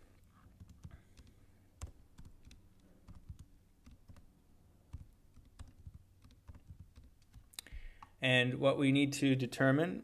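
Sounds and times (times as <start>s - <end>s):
computer keyboard typing: 0.5s - 4.3s, 4.9s - 8.2s.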